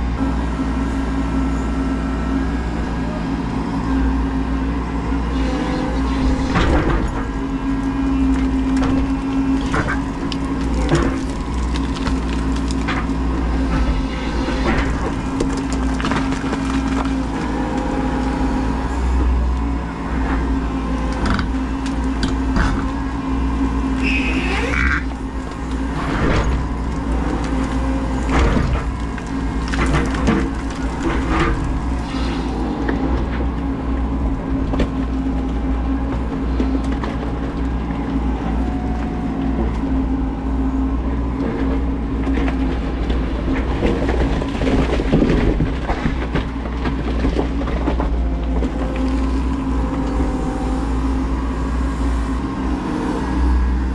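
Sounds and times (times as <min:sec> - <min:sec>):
excavator engine running: 0:00.0 - 0:53.9
brief high squeal: 0:24.0 - 0:24.9.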